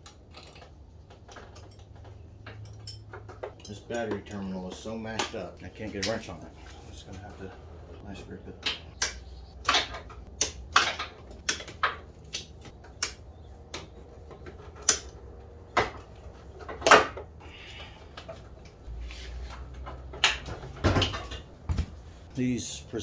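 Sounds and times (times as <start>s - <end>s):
metal pliers clicking and clanking: 2.5s - 6.3s.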